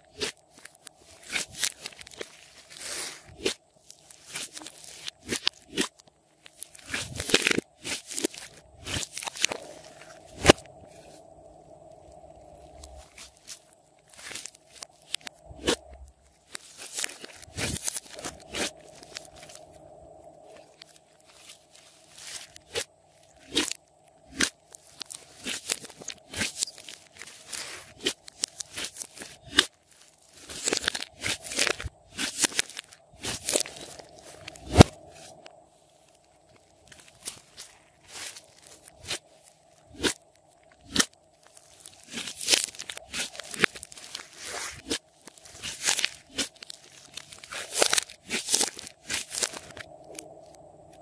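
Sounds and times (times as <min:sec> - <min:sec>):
slime crackling: 0:00.1 - 0:11.3, 0:20.4 - 0:35.4, 0:36.1 - 0:50.5
slime squishing: 0:20.4 - 0:35.5, 0:36.1 - 0:50.5.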